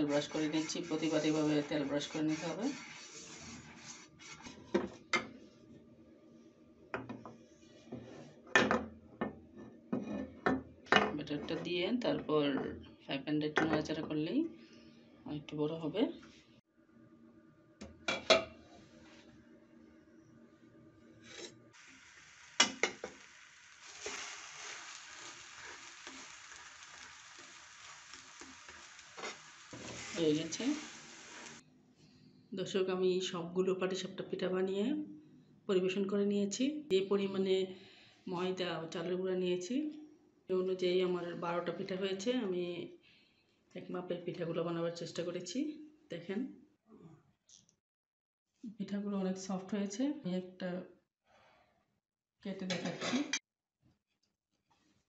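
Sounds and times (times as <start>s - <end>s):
batter pouring: 21.8s - 31.6s
crepe sizzling in frying pan: 21.8s - 31.6s.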